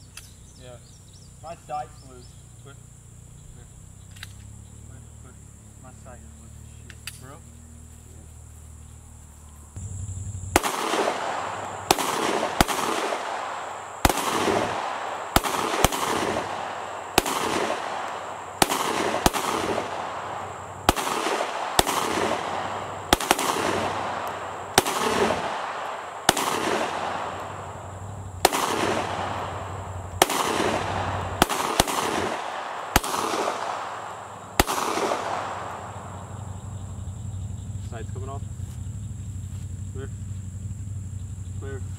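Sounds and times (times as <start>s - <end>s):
pistol shots with echo: 10.5s - 37.1s.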